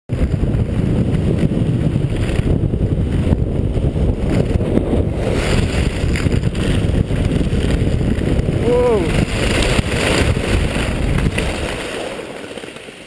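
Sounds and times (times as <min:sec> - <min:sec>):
wind buffeting microphone: 0:00.1 - 0:12.4
skis hissing over snow: 0:04.2 - 0:13.0.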